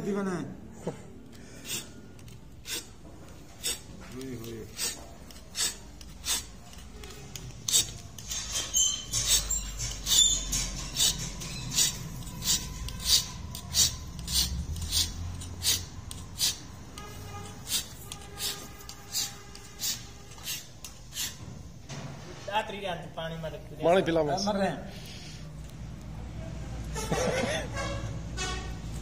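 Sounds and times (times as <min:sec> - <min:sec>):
file rasping on steel: 0:01.6 - 0:02.0, 0:02.6 - 0:21.5.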